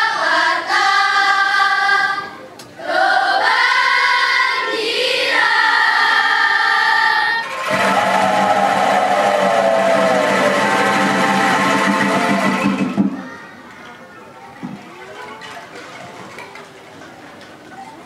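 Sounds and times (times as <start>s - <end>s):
children's choir singing: 0.0s - 13.6s
bamboo angklungs shaking: 15.0s - 17.3s.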